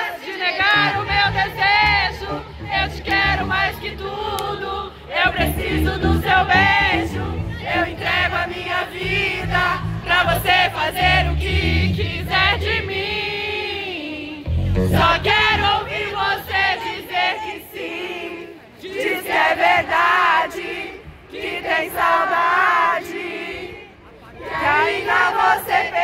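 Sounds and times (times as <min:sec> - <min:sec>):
crowd singing and chanting: 0:00.0 - 0:26.0.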